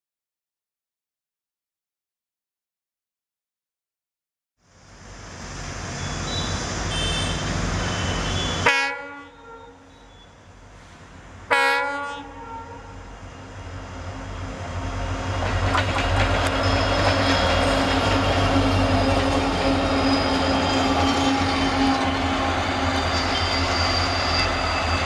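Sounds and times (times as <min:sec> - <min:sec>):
locomotive horn blasts: 0:06.9 - 0:09.9, 0:11.5 - 0:13.0
train wheels: 0:14.1 - 0:25.0.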